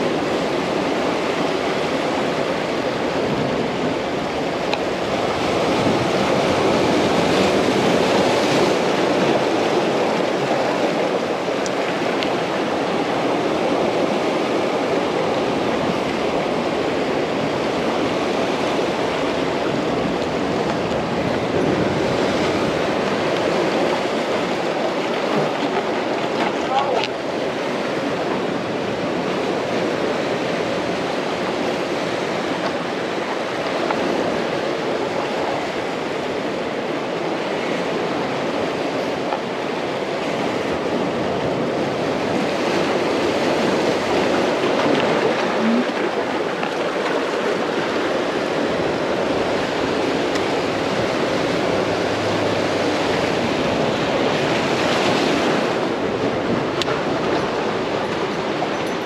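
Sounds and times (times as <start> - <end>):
waves breaking on a beach: 0.0 - 59.0.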